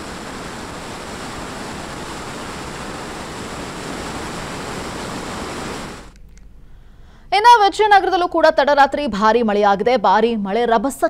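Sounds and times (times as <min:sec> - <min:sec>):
floodwater rushing over a dam: 0:00.0 - 0:06.1.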